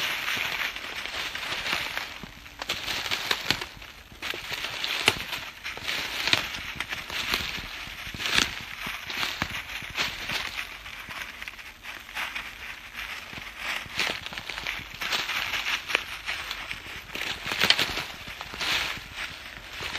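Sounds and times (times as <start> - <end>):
twigs snapping: 0.0 - 10.8, 13.8 - 19.9
footsteps through dry leaves: 0.0 - 19.9.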